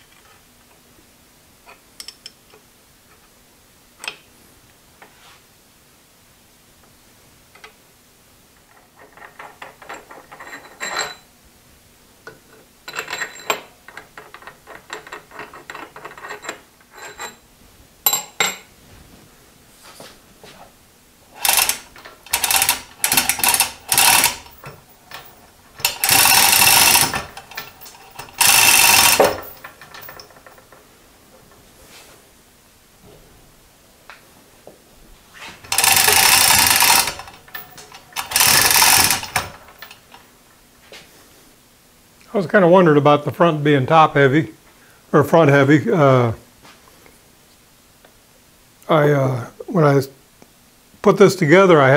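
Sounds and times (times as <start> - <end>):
metal scraping and clanking: 12.9 - 17.4, 21.4 - 30.8, 35.3 - 40.1
ratchet wrench clicking: 21.4 - 30.2, 35.7 - 39.5.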